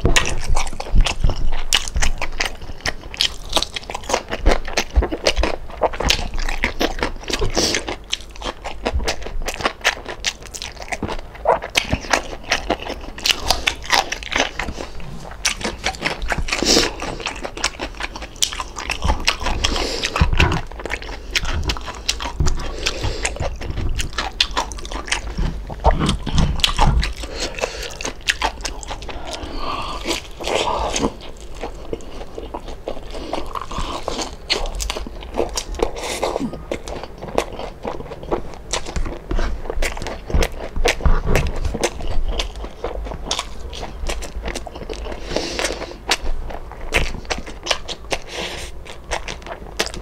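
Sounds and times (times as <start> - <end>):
person chewing crispy food: 0.0 - 50.0.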